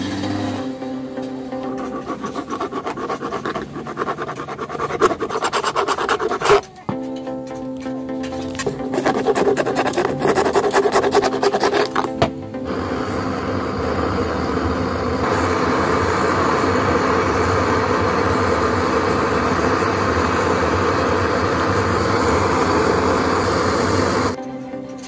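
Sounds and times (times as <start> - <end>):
blowtorch flame rushing: 8.9 - 24.4.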